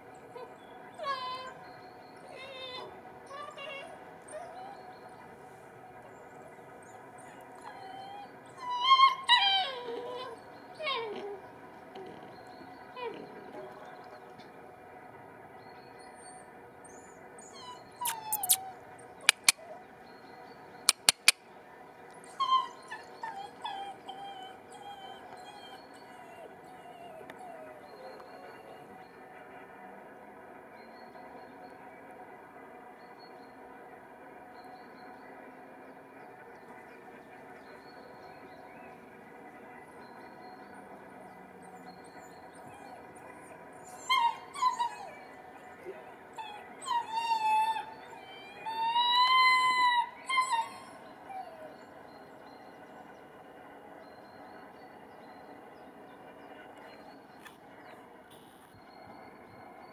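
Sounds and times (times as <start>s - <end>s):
puppies whining: 0.3s - 5.4s, 6.3s - 14.5s, 16.0s - 19.9s, 20.8s - 21.4s, 22.1s - 29.0s, 41.7s - 52.8s
faint high chirps: 17.0s - 21.4s
short sharp clicks: 19.3s - 19.6s, 20.9s - 21.4s.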